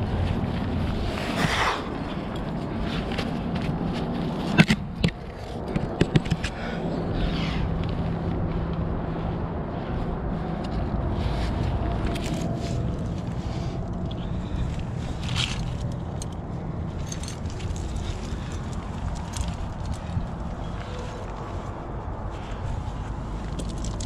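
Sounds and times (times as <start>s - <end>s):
steady low rumble: 0.0s - 24.0s
climbing gear metallic clicks: 12.0s - 21.1s, 23.4s - 24.0s.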